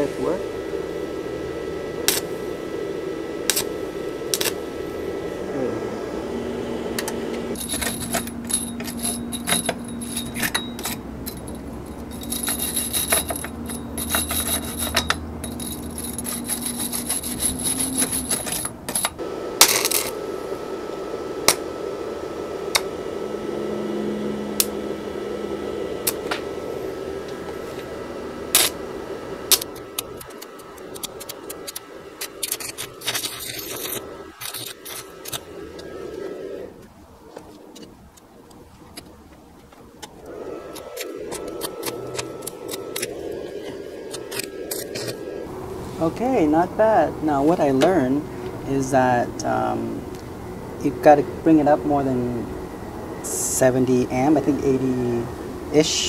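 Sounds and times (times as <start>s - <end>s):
welding arc crackling and sputtering: 0.0s - 56.0s.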